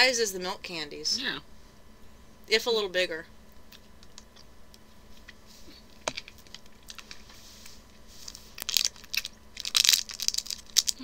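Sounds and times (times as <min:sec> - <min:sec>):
plastic packaging crinkling: 0:05.9 - 0:07.4, 0:08.2 - 0:11.0.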